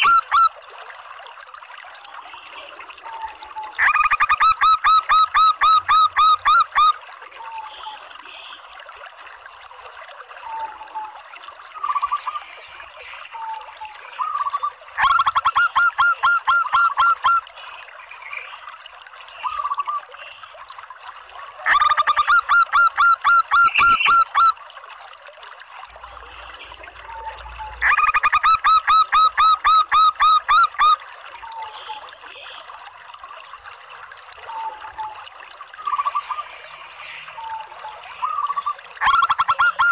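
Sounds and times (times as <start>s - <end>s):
dove calling: 14.2s - 17.4s, 38.2s - 39.9s.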